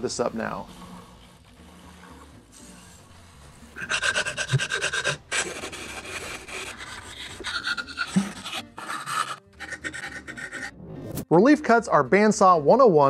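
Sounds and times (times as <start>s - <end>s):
hand sanding wood: 3.8s - 10.7s.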